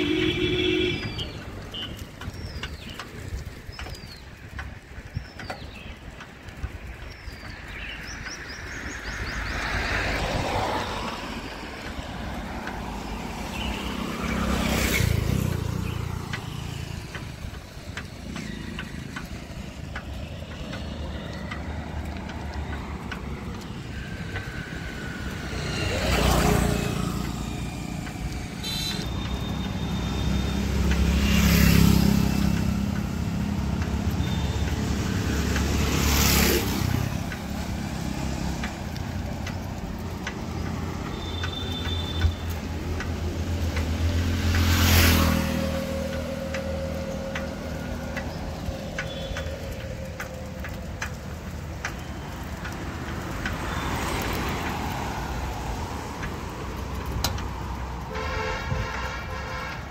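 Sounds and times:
vehicles passing: 0:00.0 - 0:59.9
low engine rumble: 0:44.6 - 0:53.6.

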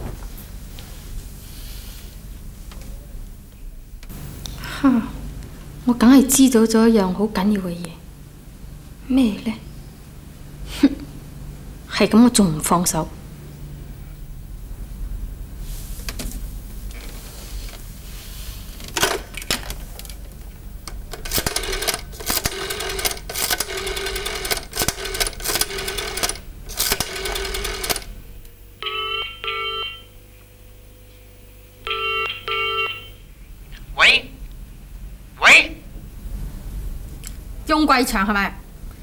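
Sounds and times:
telephone ringing: 0:21.2 - 0:28.1, 0:28.8 - 0:30.2, 0:31.8 - 0:33.2
double-ring tone on phone line: 0:28.8 - 0:30.2, 0:31.8 - 0:33.2.

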